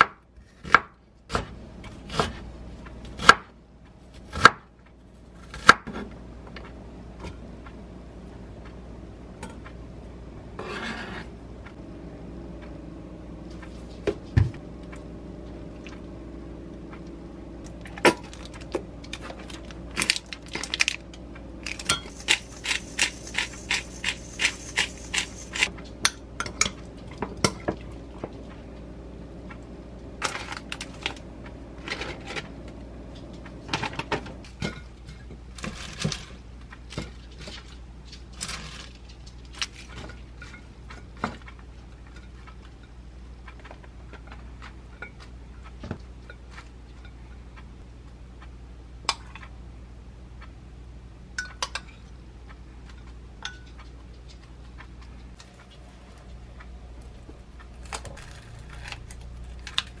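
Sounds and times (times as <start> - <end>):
steady low hum: 0.0 - 60.0.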